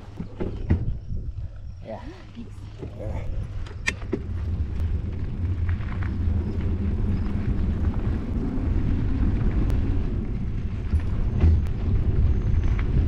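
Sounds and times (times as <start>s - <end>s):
bike tyres rolling on dirt: 0.0s - 13.0s
wind buffeting microphone: 0.0s - 13.0s
bike clicks and rattles: 2.6s - 13.0s.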